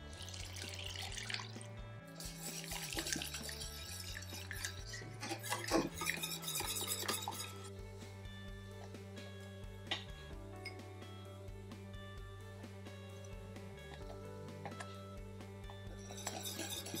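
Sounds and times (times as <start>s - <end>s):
milk pouring into saucepan: 0.0s - 7.7s, 16.0s - 17.0s
soft background music: 0.0s - 17.0s
whisk scraping a pan: 2.2s - 7.7s, 15.9s - 17.0s.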